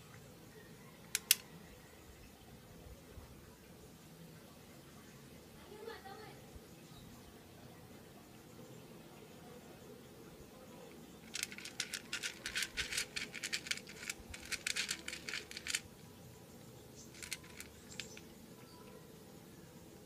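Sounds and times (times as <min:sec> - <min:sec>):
cat crunching dry kibble: 0:11.3 - 0:15.9, 0:17.2 - 0:18.2.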